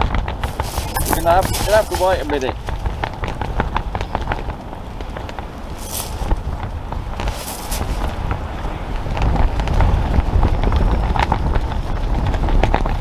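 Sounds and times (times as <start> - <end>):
small clicks and rustles: 0.0 - 8.4
wind buffeting microphone: 0.0 - 13.0.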